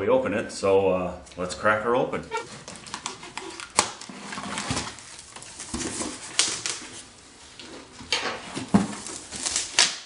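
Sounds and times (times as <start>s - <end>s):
cardboard flaps rustling: 2.4s - 10.0s.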